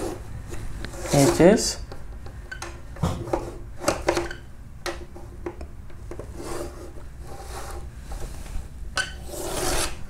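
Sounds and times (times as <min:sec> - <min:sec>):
chalk scraping on chalkboard: 0:09.2 - 0:10.0.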